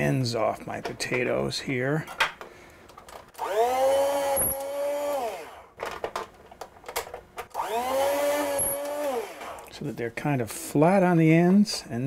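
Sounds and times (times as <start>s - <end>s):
food slicer motor whining: 3.4s - 5.6s, 7.5s - 9.7s.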